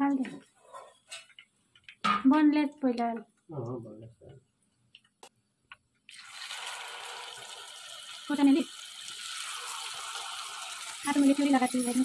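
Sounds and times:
meat deep-frying in hot oil: 6.1 - 12.0.

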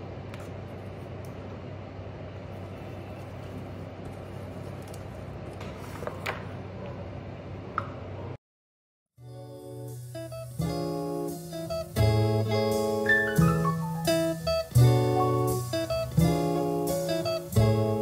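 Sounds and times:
low kitchen hum: 0.0 - 8.4.

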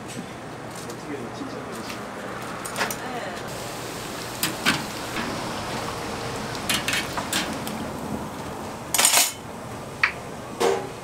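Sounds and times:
oil sizzling in deep fryer: 3.5 - 11.0
metal clatter: 8.9 - 9.4.

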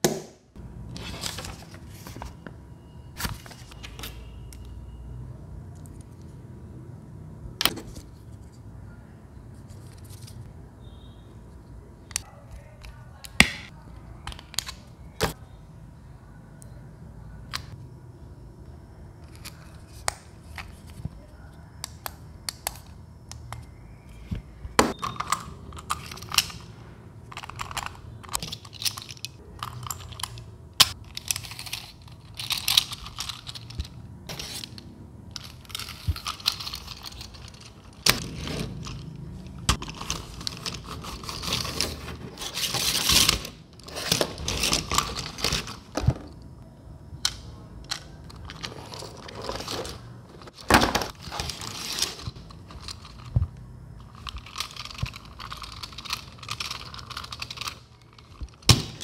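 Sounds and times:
plastic scraping and crinkling: 39.6 - 46.4, 48.2 - 59.0.

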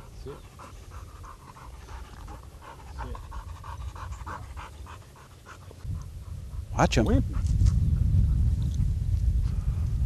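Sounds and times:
dog panting: 0.0 - 6.7
wind rumble on microphone: 5.8 - 10.0.

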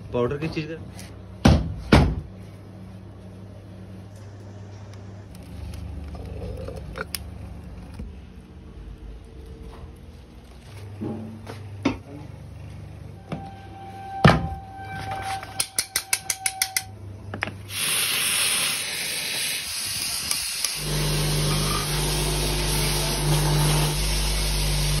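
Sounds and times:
gas torch hissing: 17.7 - 25.0.

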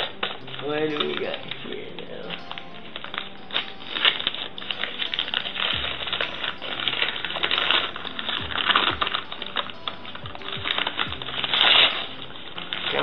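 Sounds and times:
paper crinkling and rustling: 0.0 - 13.0.

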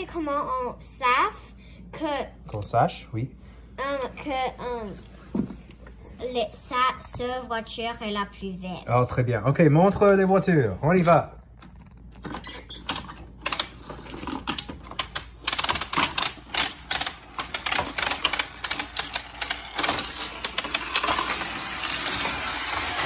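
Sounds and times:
plastic crank elevator clicking: 11.8 - 23.0.

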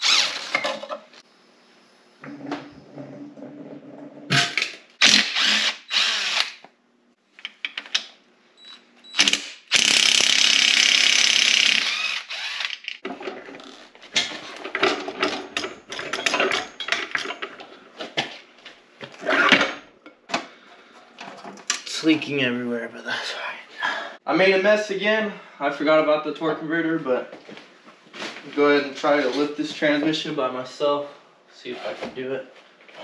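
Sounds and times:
cordless drill spinning bolts: 0.0 - 0.7, 5.0 - 6.6, 9.1 - 13.0
clanks and rattles of tools: 12.9 - 18.4, 19.1 - 21.9.

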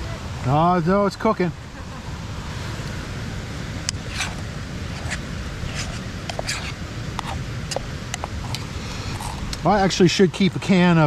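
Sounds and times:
spoon scraping a pot: 4.1 - 7.4.

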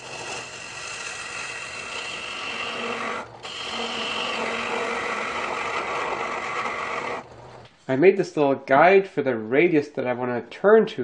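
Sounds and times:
lathe motor hum: 0.0 - 7.3
chisel scraping spinning wood: 0.0 - 7.6.

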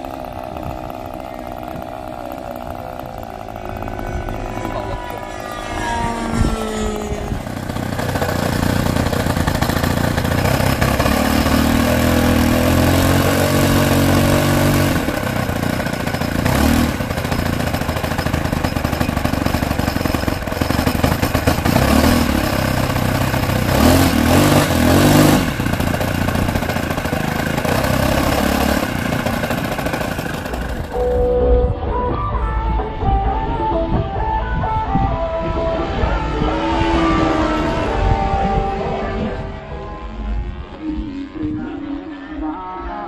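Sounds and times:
rising whine: 0.0 - 17.1, 27.7 - 43.0
model plane engine running: 0.0 - 31.4, 33.7 - 42.7.

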